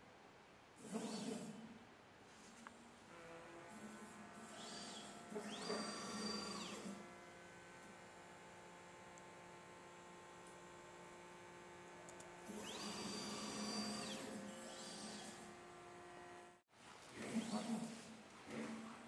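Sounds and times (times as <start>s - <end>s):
steady electrical hum: 1.5s - 19.0s
stepper motor whine: 3.1s - 16.6s.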